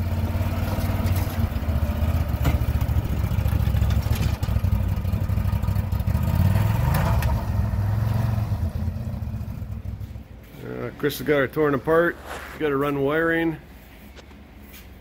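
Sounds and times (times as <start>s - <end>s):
engine running at low revs: 0.0s - 10.6s
sharp knocks on metal ramps: 2.2s - 4.7s.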